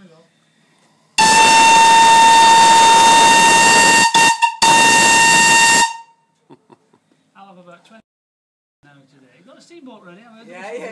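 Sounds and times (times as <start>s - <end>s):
steam whistle blast: 1.2s - 6.2s.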